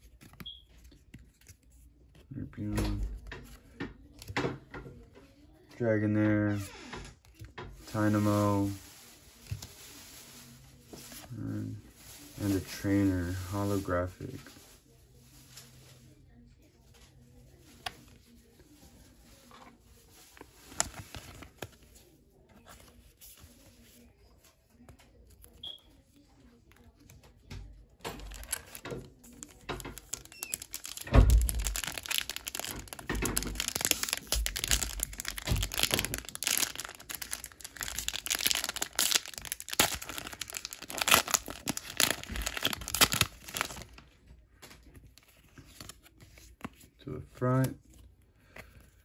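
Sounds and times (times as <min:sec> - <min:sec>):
foil pack crinkling and tearing: 0:28.2 - 0:44.0.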